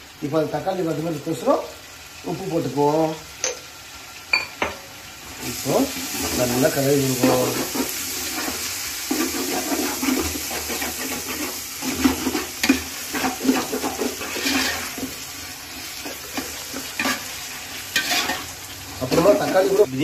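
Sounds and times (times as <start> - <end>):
tomatoes sizzling in oil: 0.0 - 20.0
metal ladle scraping pot: 6.0 - 19.9.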